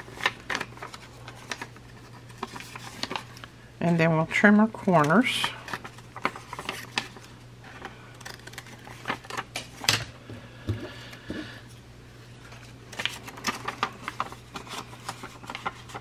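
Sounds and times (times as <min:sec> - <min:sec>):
paper rustling and tapping: 0:12.9 - 0:16.0.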